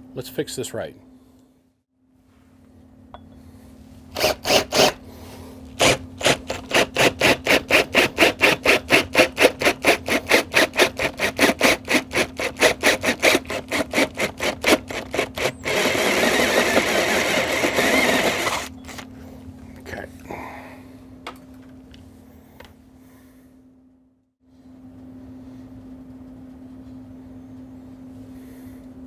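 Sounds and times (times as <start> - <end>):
low motor hum: 1.0 - 29.0
drill bit cutting metal: 5.8 - 19.0.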